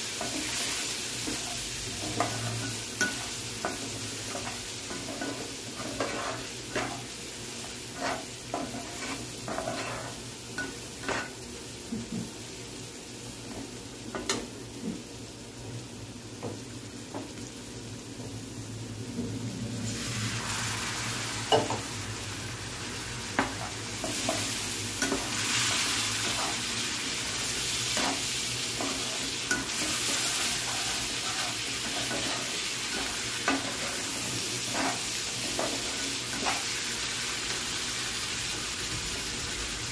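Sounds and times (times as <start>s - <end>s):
oil sizzling: 0.0s - 39.9s
metal spatula scraping a pan: 0.2s - 7.1s, 7.7s - 11.4s, 27.9s - 36.7s.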